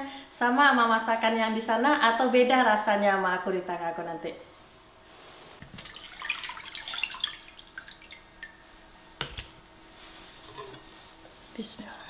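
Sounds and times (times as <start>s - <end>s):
water splashing and dripping: 5.6s - 8.9s.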